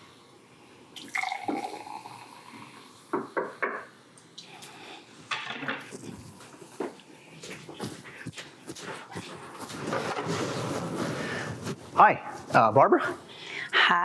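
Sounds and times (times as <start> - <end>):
champagne pouring into glasses: 1.0 - 2.6.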